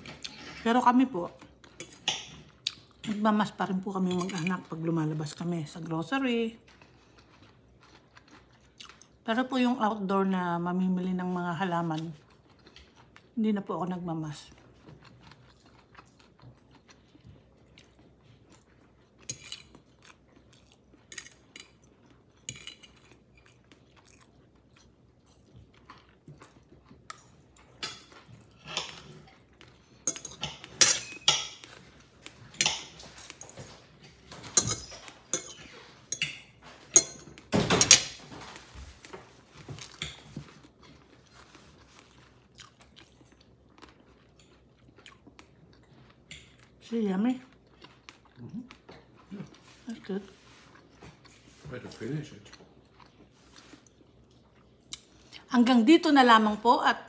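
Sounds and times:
chewing: 6.6s - 9.2s, 11.8s - 13.4s, 14.4s - 36.1s, 38.6s - 46.8s, 47.4s - 55.5s.

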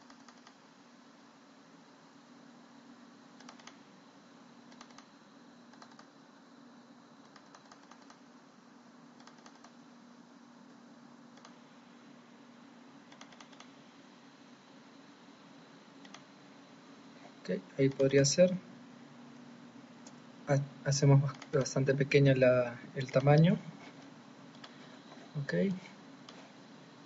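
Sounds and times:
keyboard typing: 0.0s - 0.6s, 3.4s - 3.8s, 4.7s - 5.1s, 5.7s - 6.1s, 7.2s - 8.2s, 9.2s - 9.8s, 11.4s - 11.6s, 13.1s - 13.8s, 16.0s - 16.3s, 21.2s - 21.7s
low steady hum: 0.0s - 27.0s.

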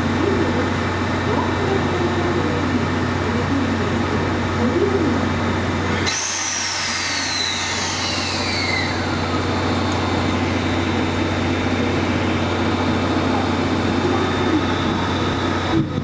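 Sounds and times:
electric train approaching: 0.0s - 16.0s
steam locomotive hiss and hum: 4.8s - 16.0s
high whine falling in pitch: 6.0s - 16.0s.

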